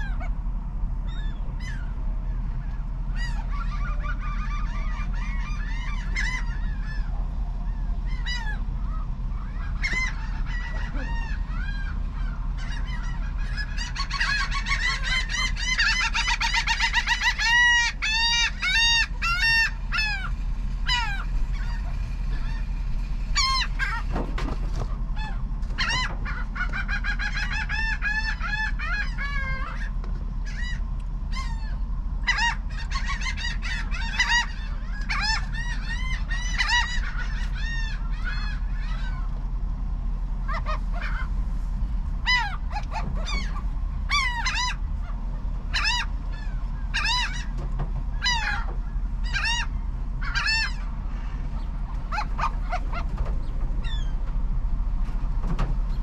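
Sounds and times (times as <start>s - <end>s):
gulls calling: 0.0s - 56.0s
low steady hum: 0.0s - 56.0s.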